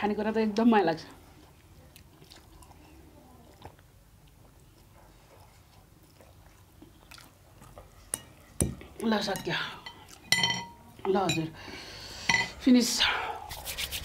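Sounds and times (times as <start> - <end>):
chewing and slurping noodles: 1.3 - 8.5.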